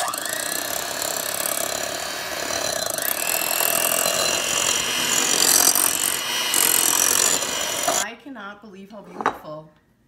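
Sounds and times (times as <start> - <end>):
electric hand mixer whipping: 0.0 - 8.0.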